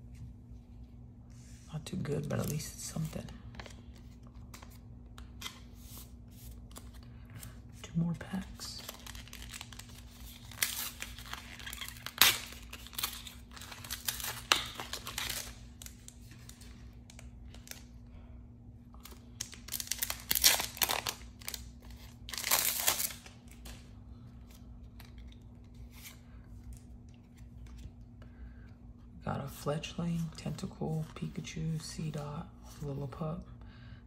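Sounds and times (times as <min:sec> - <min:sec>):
cards being handled: 0:01.9 - 0:07.7, 0:19.0 - 0:28.1
foil wrapper crinkling and tearing: 0:08.6 - 0:17.9, 0:19.0 - 0:23.8.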